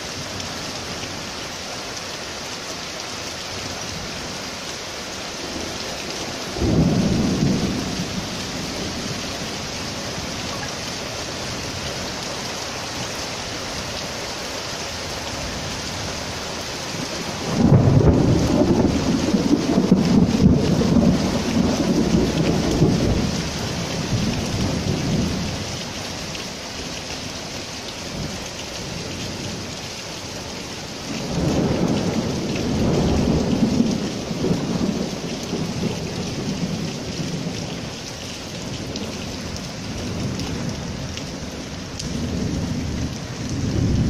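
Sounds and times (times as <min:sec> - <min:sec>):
heavy rain on paving: 0:00.0 - 0:44.0
rolling thunder: 0:06.6 - 0:09.2, 0:17.4 - 0:23.3, 0:31.2 - 0:37.6, 0:42.1 - 0:44.0.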